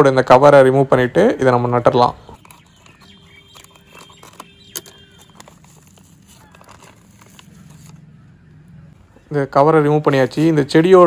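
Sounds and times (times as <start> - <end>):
plastic crinkling: 2.4 - 8.4.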